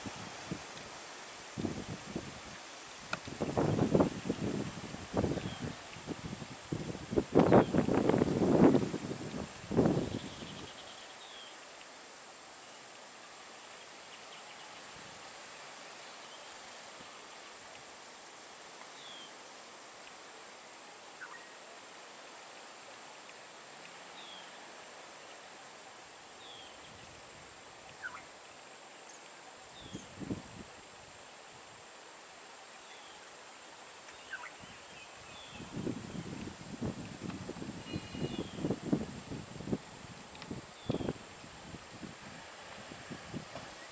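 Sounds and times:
high-pitched insect drone: 37.5 - 41.3.

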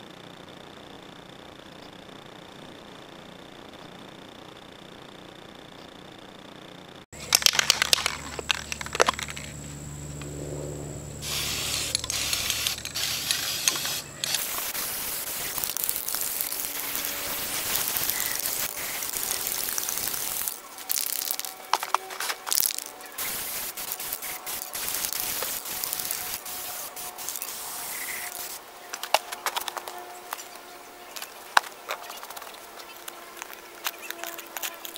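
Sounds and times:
clicks and rattles: 7.2 - 9.6
spray paint can hissing: 11.2 - 29.8.

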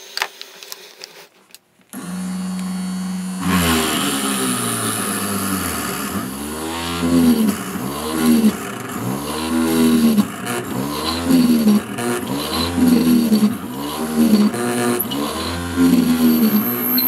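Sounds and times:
drill press motor hum: 2.0 - 17.0.

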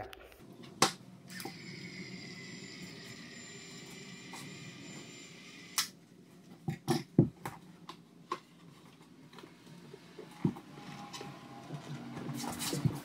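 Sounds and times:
caulking gun motor whining: 1.3 - 5.9.

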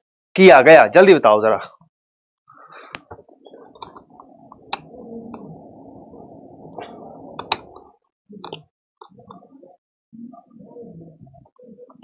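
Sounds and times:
faint room noise: 2.5 - 12.0.

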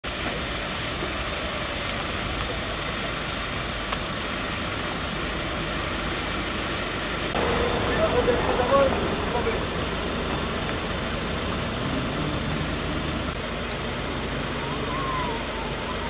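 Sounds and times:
vehicle engine and road noise: 0.0 - 16.0
mid-pitched sounds: 7.3 - 14.9.

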